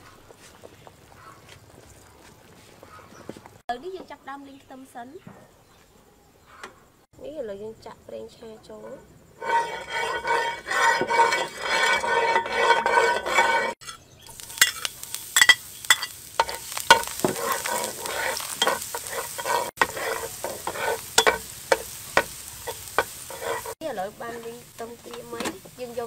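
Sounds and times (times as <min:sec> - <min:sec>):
metal spatula scraping frying pan: 0:09.4 - 0:23.8
garlic sizzling and crackling in oil: 0:09.4 - 0:26.0.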